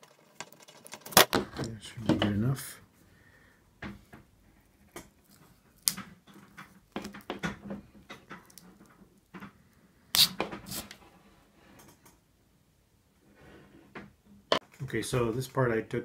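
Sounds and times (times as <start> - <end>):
cable jacket cracking and scraping: 0.0 - 1.8.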